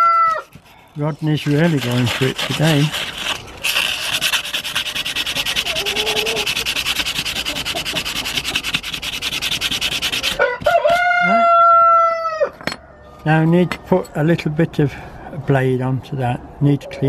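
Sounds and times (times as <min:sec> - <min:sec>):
sandpaper scratching steel blade: 0:00.0 - 0:11.0.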